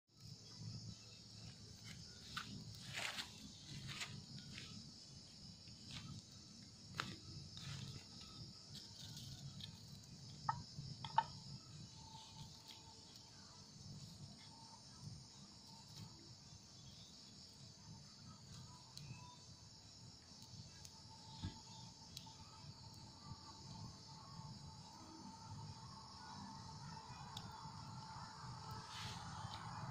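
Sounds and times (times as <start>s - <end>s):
crickets and insects chirping: 0.1s - 29.9s
campfire crackling and snapping: 1.5s - 29.9s.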